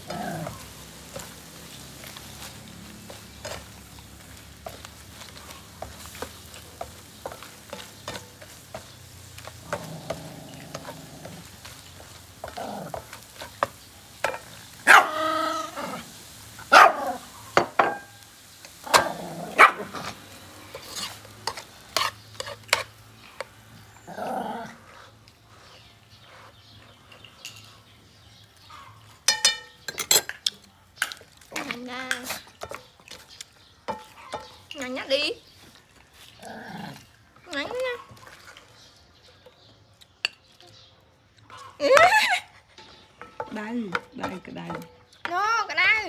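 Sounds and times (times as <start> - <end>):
spatula scraping a frying pan: 0.0 - 14.8, 19.8 - 24.1.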